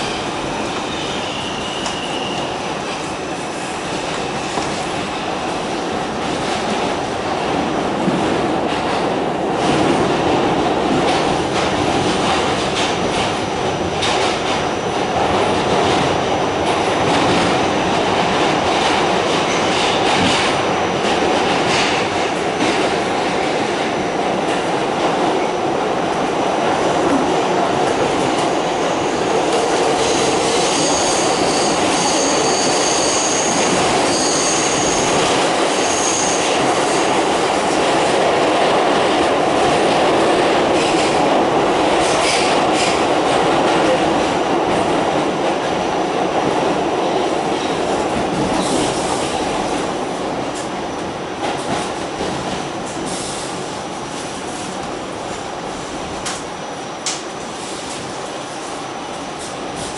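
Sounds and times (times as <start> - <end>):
steel wheels rumbling on rail: 0.0 - 59.9
high wheel squeal: 0.9 - 2.6, 30.0 - 35.2.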